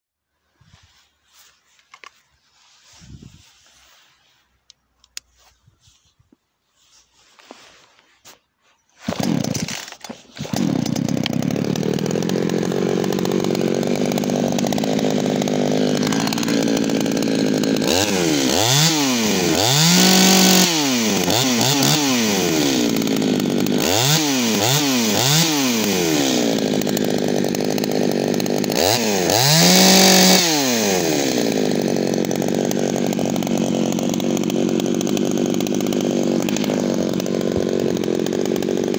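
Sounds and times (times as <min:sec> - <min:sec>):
chainsaw engine revving: 0:09.0 - 0:38.9.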